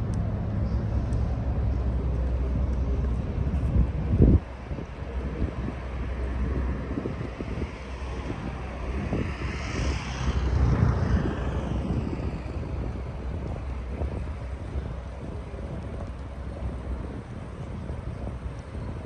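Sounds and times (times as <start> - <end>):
traffic rumble: 0.0 - 19.0
wind on microphone: 0.0 - 19.0
vehicle passing with hiss: 5.3 - 14.2.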